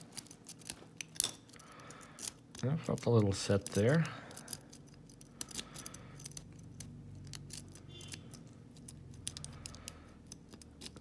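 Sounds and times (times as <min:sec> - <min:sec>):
lock pick clicking and scraping: 0:00.0 - 0:11.0.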